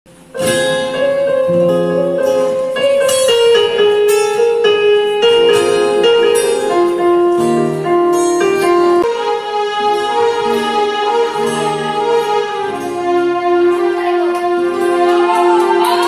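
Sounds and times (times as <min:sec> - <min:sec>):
acoustic guitar: 0:00.1 - 0:16.0
digital piano playing chords: 0:00.1 - 0:16.0.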